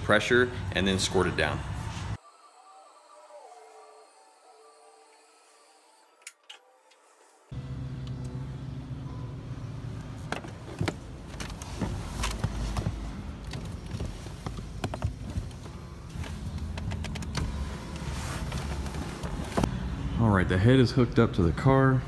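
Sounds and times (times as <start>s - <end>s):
low hum: 7.5s - 11.2s.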